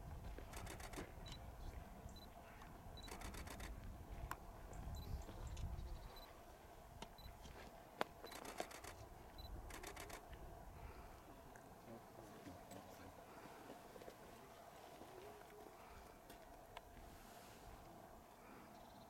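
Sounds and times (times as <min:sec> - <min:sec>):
camera shutter clicks: 0:00.5 - 0:01.0, 0:03.0 - 0:03.8, 0:08.3 - 0:09.0, 0:09.7 - 0:10.2
faint high beeps: 0:02.1 - 0:02.4, 0:04.9 - 0:05.2, 0:05.9 - 0:06.3.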